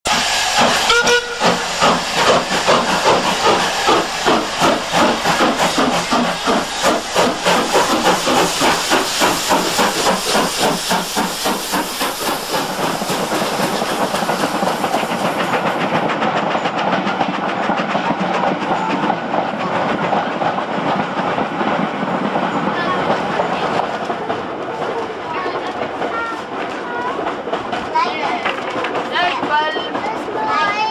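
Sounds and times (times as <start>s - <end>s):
steam locomotive chuffing: 0.1s - 30.9s
steam whistle: 0.8s - 1.6s.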